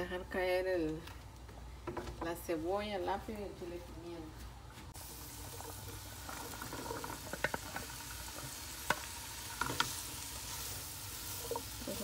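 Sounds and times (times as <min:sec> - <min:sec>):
vegetables sizzling in oil: 0:04.9 - 0:12.0.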